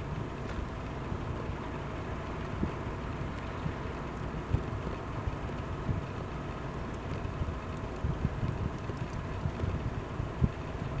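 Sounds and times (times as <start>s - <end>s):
wind buffeting microphone: 7.1s - 11.0s.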